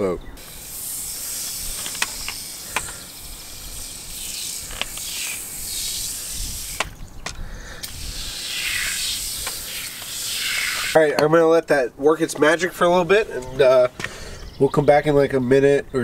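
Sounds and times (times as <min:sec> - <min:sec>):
aerosol spray hissing: 0:00.4 - 0:07.0, 0:07.7 - 0:11.0.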